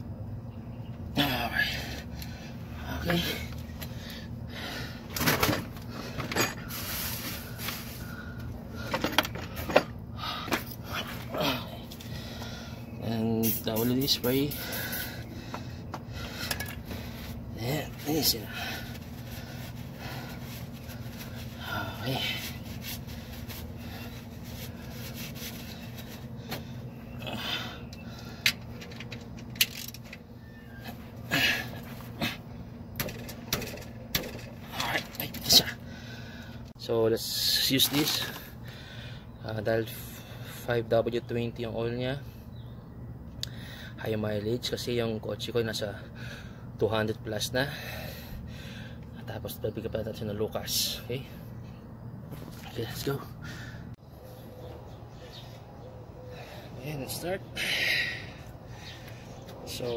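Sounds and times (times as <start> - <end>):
steady low hum: 0.0 - 59.9
tools clicking and knocking: 33.0 - 35.4.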